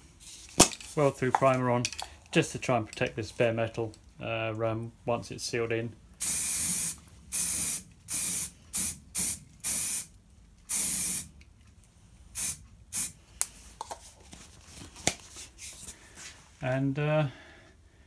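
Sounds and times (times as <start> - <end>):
aerosol can spraying hiss: 6.2 - 10.1, 10.7 - 11.3, 12.4 - 13.2.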